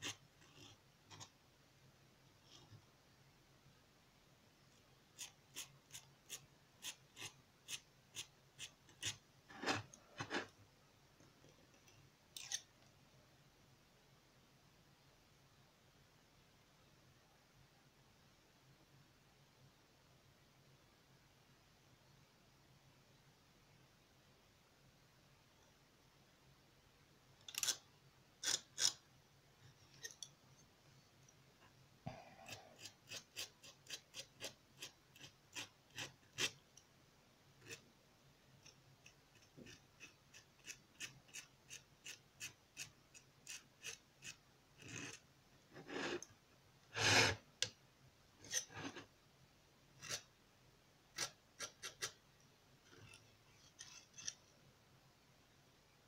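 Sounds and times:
palette knife scraping on palette: 0.0 - 1.4, 2.4 - 2.8, 5.2 - 10.6, 11.4 - 12.7, 27.5 - 29.0, 32.4 - 36.6, 37.6 - 37.8, 38.6 - 45.2, 45.8 - 46.3, 46.9 - 47.7, 48.4 - 49.1, 50.0 - 50.3, 51.1 - 52.2, 52.8 - 54.5.

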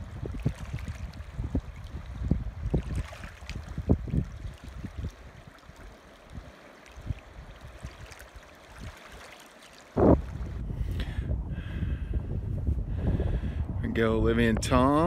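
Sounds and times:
wind buffeting microphone: 0.0 - 9.1, 9.9 - 15.0
river water flowing: 0.0 - 10.6.

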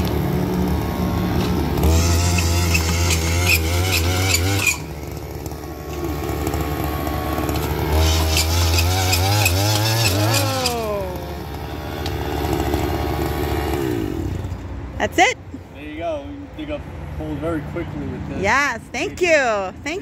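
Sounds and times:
two-stroke earth auger engine: 0.0 - 15.0.

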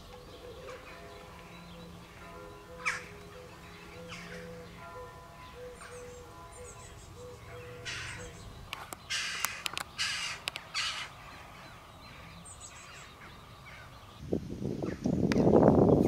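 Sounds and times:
crow cawing: 2.7 - 8.4, 9.1 - 13.9.

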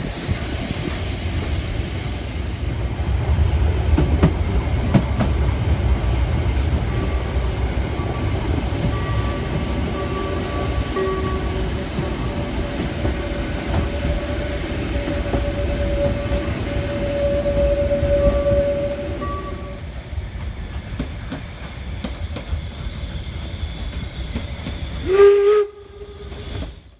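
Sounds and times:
steam train clattering over track: 0.0 - 26.9
steam locomotive whistle: 8.0 - 19.9, 22.9 - 26.9.

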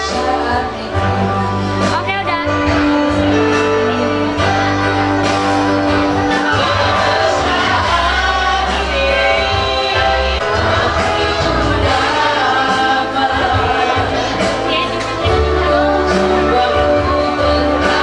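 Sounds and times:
instrumental music with bass line: 0.0 - 18.0
person singing: 0.0 - 18.0.

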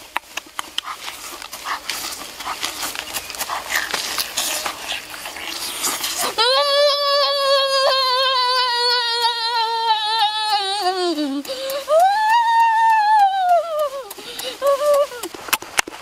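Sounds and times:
boy humming with mouth full: 5.5 - 15.4.

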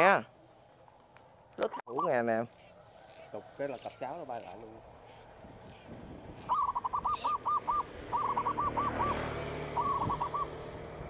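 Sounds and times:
bird hooting: 5.1 - 10.7.

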